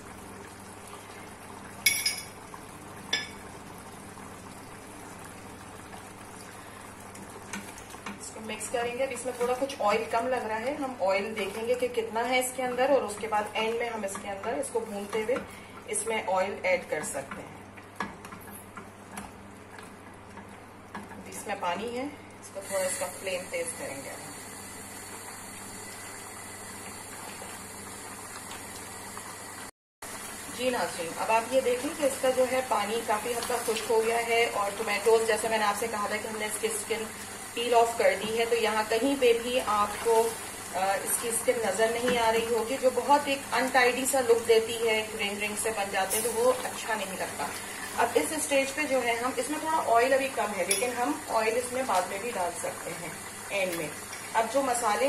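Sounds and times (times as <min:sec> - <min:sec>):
sauce bubbling in a pan: 0:00.0 - 0:55.0
kitchen utensils clinking: 0:01.9 - 0:02.4, 0:46.1 - 0:46.6, 0:50.6 - 0:51.1.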